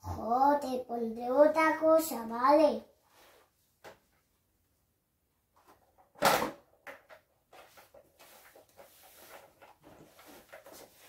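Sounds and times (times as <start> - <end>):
plastic rattling and rustling: 5.6 - 11.0.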